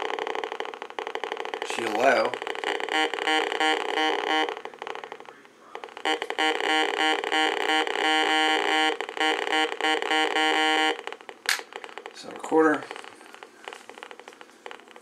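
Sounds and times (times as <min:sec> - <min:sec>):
metal detector pulsing tone: 0:00.0 - 0:04.6, 0:06.0 - 0:11.1.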